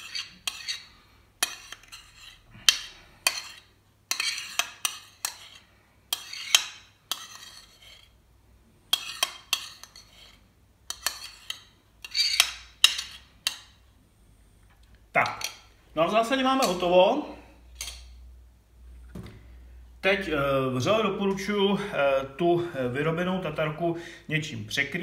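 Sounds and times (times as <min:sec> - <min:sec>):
spoon scraping a plate: 0:00.0 - 0:08.2, 0:08.9 - 0:13.8.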